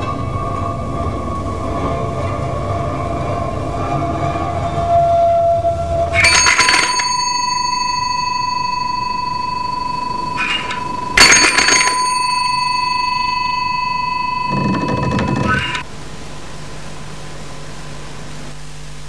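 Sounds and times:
doorbell ringing: 6.2s - 15.8s
small jingle: 6.2s - 15.8s.

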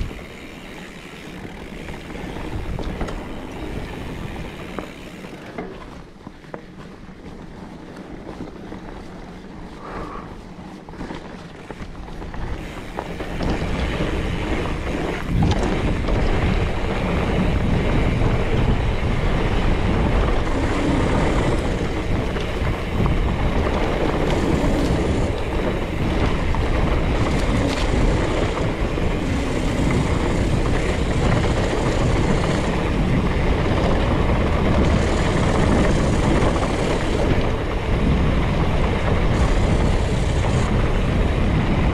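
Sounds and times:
wind rushing over microphone: 0.0s - 5.3s, 11.6s - 41.9s
bike tyre and frame rattle: 0.0s - 41.9s.

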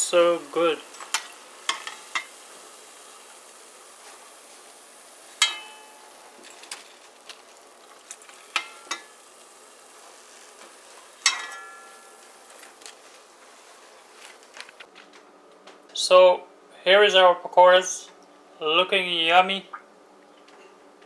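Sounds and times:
food sizzling in hot oil: 0.0s - 14.8s
metal spoon clinking on pot: 5.4s - 5.9s, 8.6s - 9.1s, 11.2s - 12.0s.

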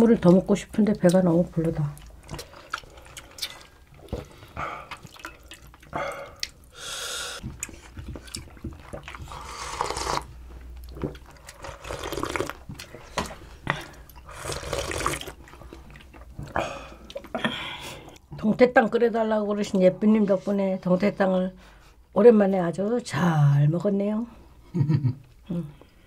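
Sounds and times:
slurping from bowls: 7.2s - 10.3s, 11.4s - 17.2s.

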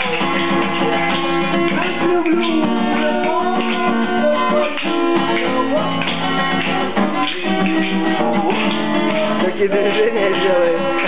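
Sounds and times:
guitar music: 0.0s - 11.0s.

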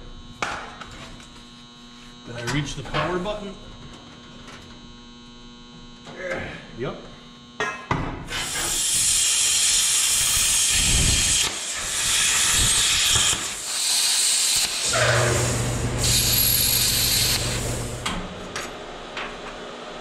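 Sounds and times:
plasma cutter hissing: 8.3s - 18.0s
steady low hum: 14.8s - 20.0s.

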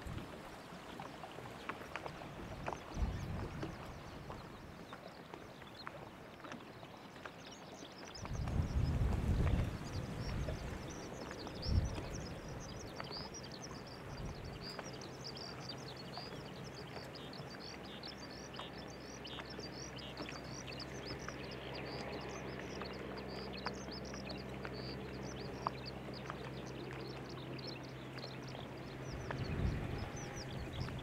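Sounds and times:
rapid chirping birdsong: 6.7s - 31.0s.

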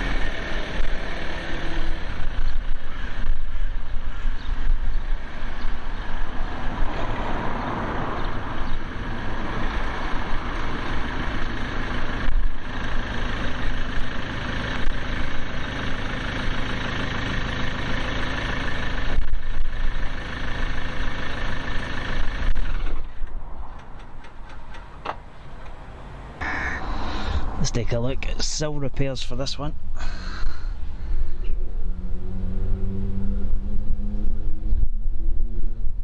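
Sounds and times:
van engine idling: 8.2s - 36.0s.

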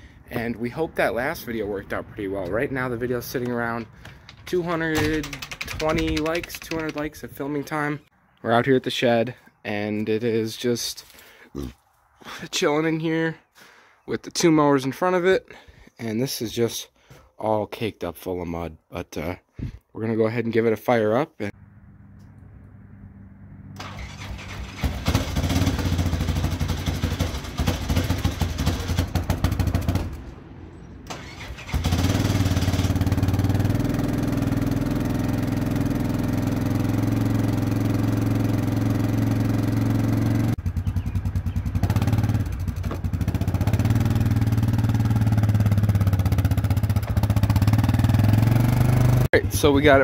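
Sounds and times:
atv engine starting and running: 0.0s - 8.0s, 21.6s - 50.0s.

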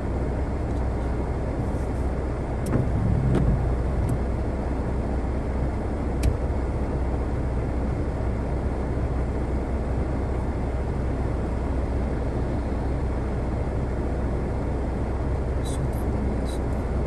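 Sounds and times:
traffic on a wet road: 0.0s - 17.0s
car cabin rumble: 0.5s - 6.8s.

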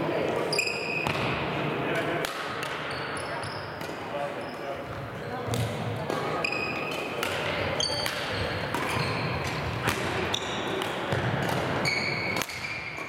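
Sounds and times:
racket striking shuttlecock: 6.9s - 12.7s.

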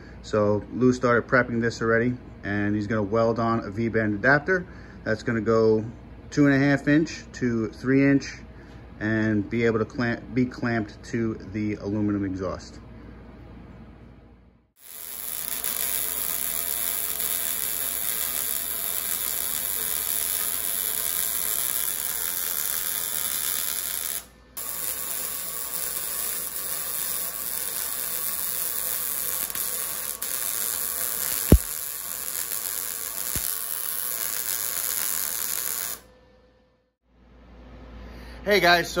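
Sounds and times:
arc welder crackling and buzzing: 14.8s - 36.1s
sharp click: 31.4s - 31.8s.

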